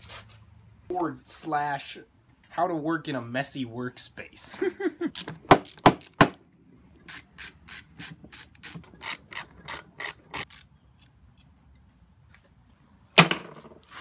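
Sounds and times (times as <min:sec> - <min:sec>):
ratchet wrench clicking: 0:07.1 - 0:11.1.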